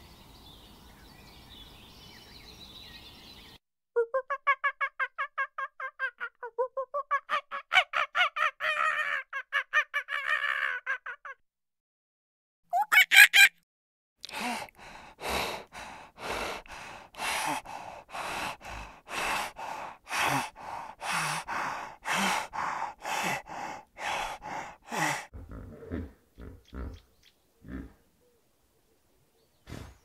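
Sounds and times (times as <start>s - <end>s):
hyena huffing: 14.3s - 27.0s
hyena low grunts: 25.3s - 27.0s.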